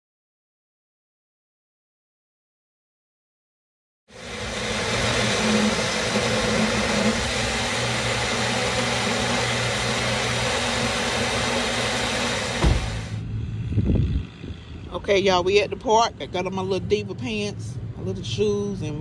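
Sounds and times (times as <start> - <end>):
blender motor running: 4.1 - 13.2
low thump: 12.5 - 13.1.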